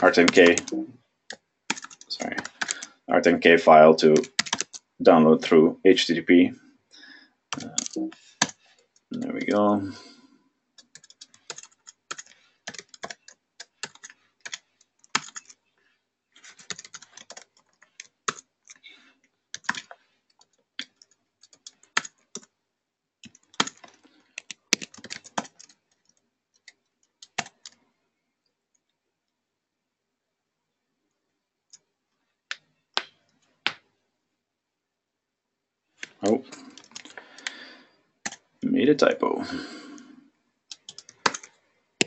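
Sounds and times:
computer keyboard typing: 0:00.0 - 0:02.9, 0:04.1 - 0:04.9, 0:07.5 - 0:09.6, 0:10.8 - 0:15.6, 0:16.4 - 0:22.5, 0:23.2 - 0:27.8, 0:36.0 - 0:37.6, 0:38.2 - 0:38.5, 0:40.7 - 0:41.6.

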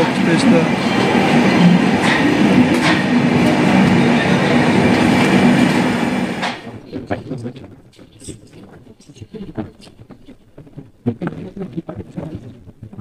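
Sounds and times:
train wheels rumbling on rail: 0:00.0 - 0:06.8.

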